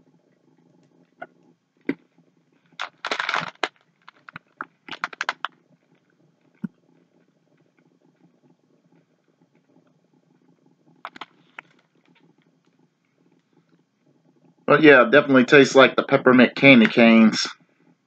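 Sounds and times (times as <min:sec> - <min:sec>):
candy being crunched: 0:02.8 - 0:05.5.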